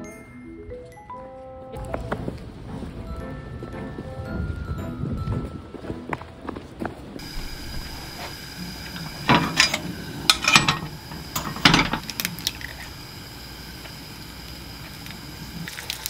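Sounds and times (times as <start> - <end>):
gas stove clicking and knocking: 7.2 - 15.6.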